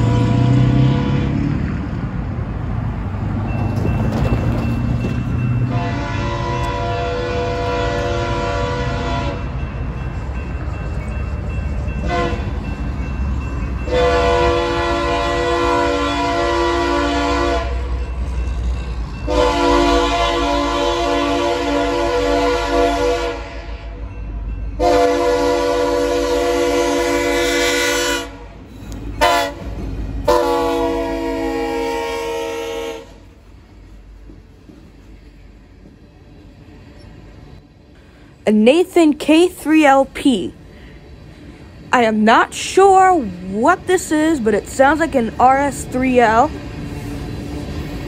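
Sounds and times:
locomotive air horn blasts: 0.0 - 1.4, 5.6 - 9.6, 12.0 - 12.5, 13.9 - 18.0, 19.3 - 24.0, 24.8 - 28.5, 29.2 - 33.3.

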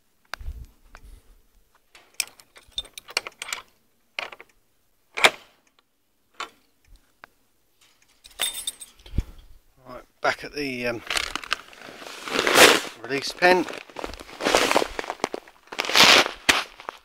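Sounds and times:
gate bolt and padlock clicks: 1.9 - 4.5, 5.1 - 5.5
metallic rattles: 7.8 - 9.2.

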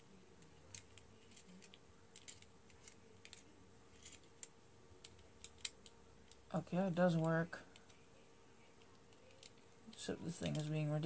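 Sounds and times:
small plastic clicks: 0.4 - 6.5, 8.8 - 10.8.

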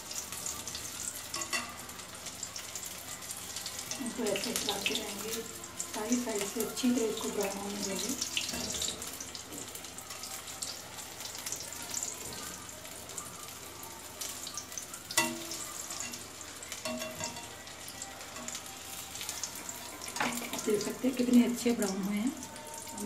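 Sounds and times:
oil sizzling while deep-frying: 0.0 - 23.0
wire skimmer clinking on pan: 15.2 - 23.0.

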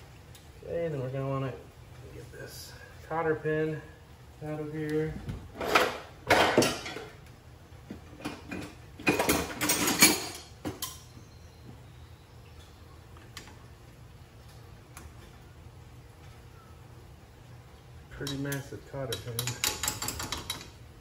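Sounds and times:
metal tools clattering: 5.6 - 7.2, 8.2 - 11.1, 18.2 - 20.8.

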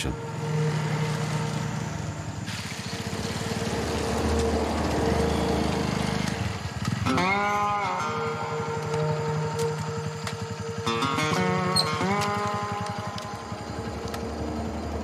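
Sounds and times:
motorcycle engine running: 0.0 - 15.0
tyres splashing through mud: 2.5 - 6.4.

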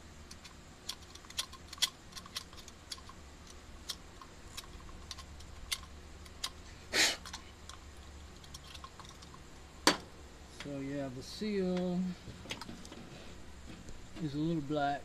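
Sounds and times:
small metal parts clicking: 0.2 - 6.6, 7.2 - 9.5.

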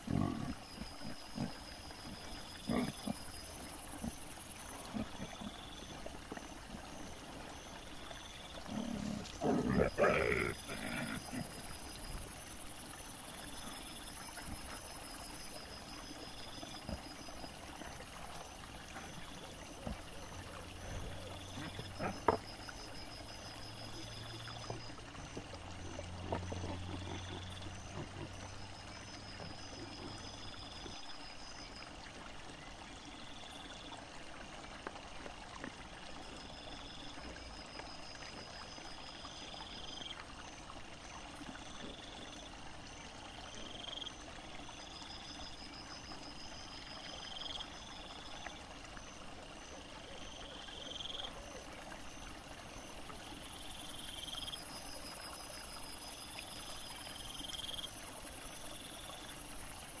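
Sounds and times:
insects chirping: 0.0 - 34.0, 34.9 - 60.0
stream running: 0.0 - 60.0
insect trills: 43.3 - 60.0.

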